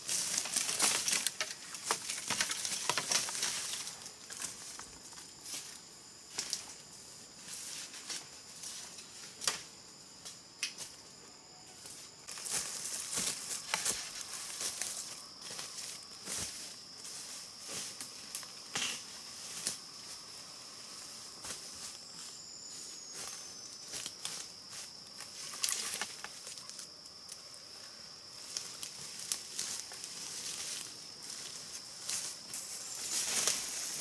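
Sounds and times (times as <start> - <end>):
clicks crackles and rustles: 0.0 - 5.2, 12.3 - 15.2, 25.1 - 27.5
high-pitched insect drone: 0.0 - 34.0.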